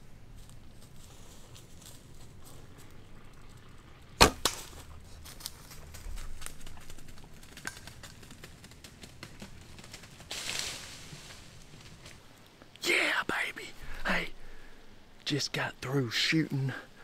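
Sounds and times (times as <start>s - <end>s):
arrow striking target: 4.2s - 4.8s.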